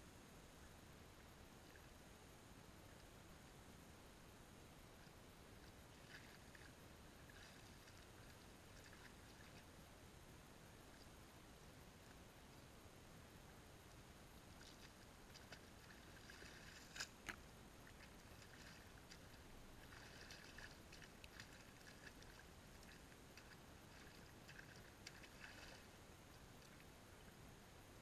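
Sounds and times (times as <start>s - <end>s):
water sloshing and splashing: 14.6s - 26.9s
sharp little splashes: 18.0s - 25.9s.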